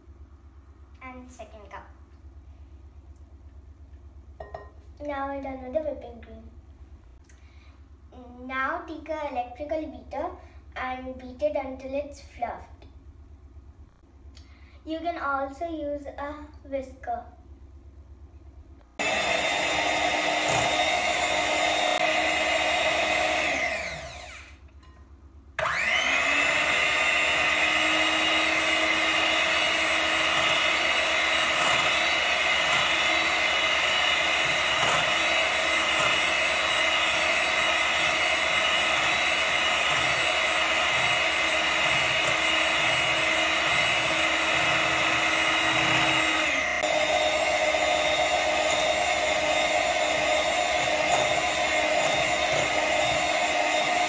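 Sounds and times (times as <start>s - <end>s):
electric hand mixer whipping cream: 19.0s - 24.6s, 25.6s - 54.0s.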